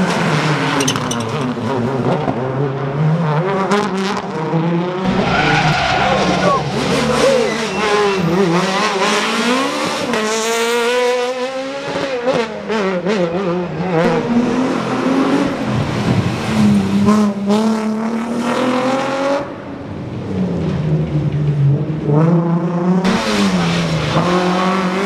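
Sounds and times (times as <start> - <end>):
rally car engines revving: 0.0 - 25.0
tyre squeal: 5.1 - 9.1.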